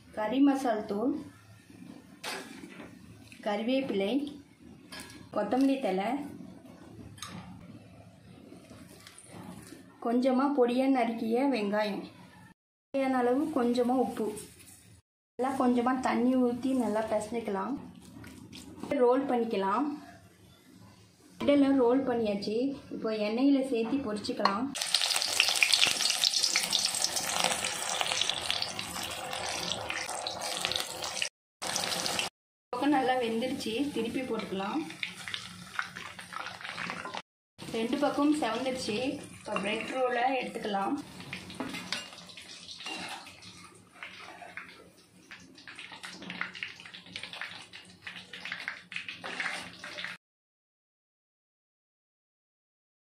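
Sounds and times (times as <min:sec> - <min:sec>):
deep-frying oil sizzling: 0:24.8 - 0:44.2, 0:45.2 - 0:50.2.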